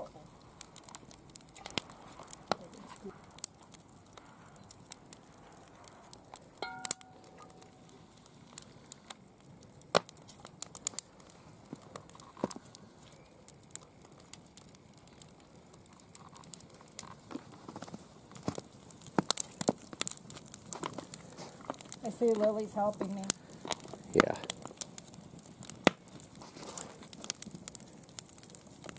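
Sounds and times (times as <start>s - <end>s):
wood fire crackling: 0.0s - 28.9s
short metallic ring: 6.6s - 7.2s.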